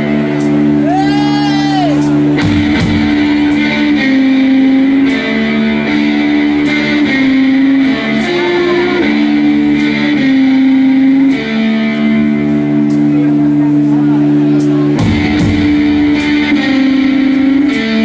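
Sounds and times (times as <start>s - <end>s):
drum and cymbal hits: 0.0s - 7.1s, 14.5s - 18.0s
electric guitar riff: 0.0s - 18.0s.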